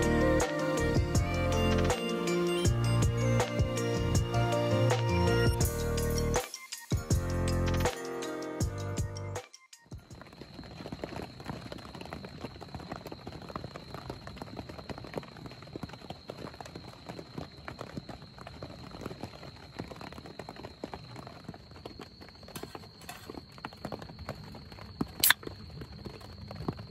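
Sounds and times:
heavy rain on a tent: 10.0s - 26.9s.

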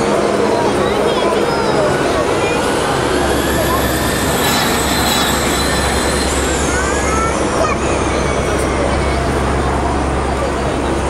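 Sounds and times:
electric race car motor whine: 3.0s - 7.4s.

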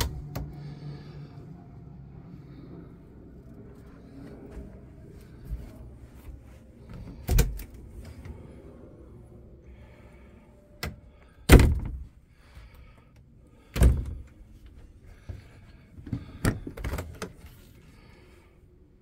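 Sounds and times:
refrigerator door clunks: 11.5s - 12.0s.

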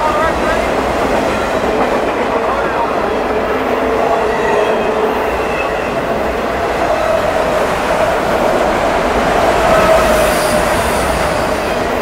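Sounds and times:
freight train wheels rumbling: 0.0s - 12.0s.

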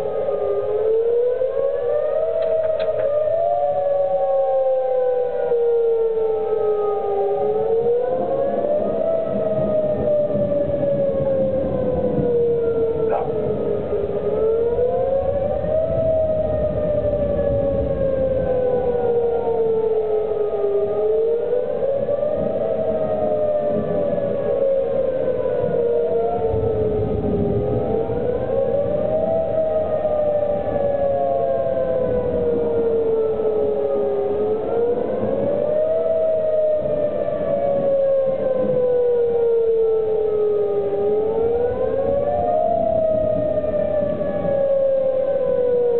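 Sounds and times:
tornado warning siren wailing: 0.0s - 45.9s.

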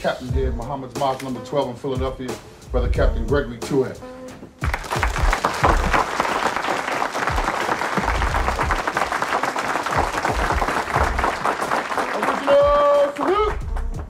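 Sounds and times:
crowd applauding: 4.6s - 14.0s.

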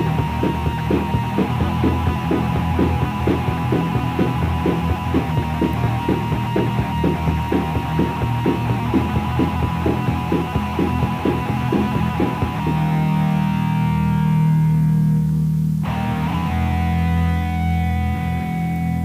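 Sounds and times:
steady pulsing beat: 0.0s - 13.9s
distorted electric guitar: 0.0s - 19.0s.

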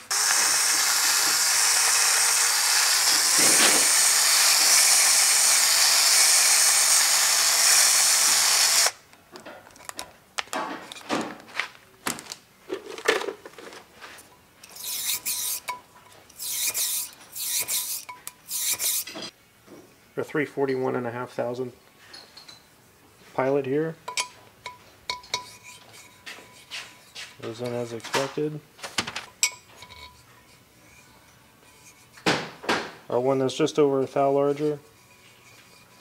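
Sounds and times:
power drill high whir: 0.0s - 9.0s
metal rubbing and scraping: 13.5s - 19.3s, 29.8s - 32.2s, 34.2s - 36.0s.

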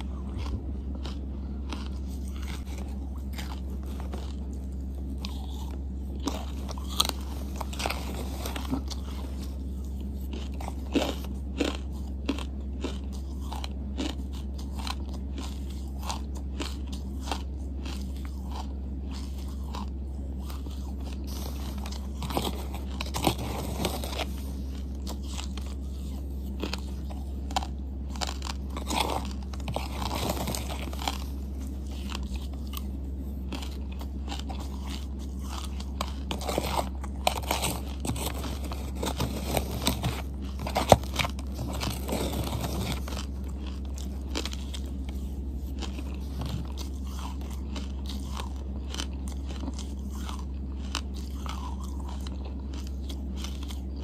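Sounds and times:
mouth chewing with crunches: 0.0s - 54.0s
steady low hum: 0.0s - 54.0s.

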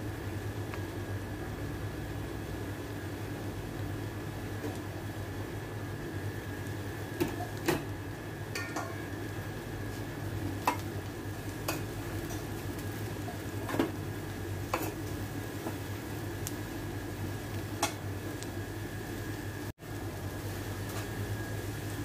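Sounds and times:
steady low hum: 0.0s - 22.0s
spoon clinking against pan: 8.6s - 9.0s.

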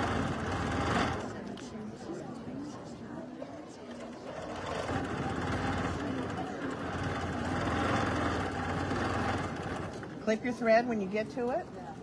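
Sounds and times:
quilting machine stitching: 0.0s - 1.3s, 4.2s - 10.1s.

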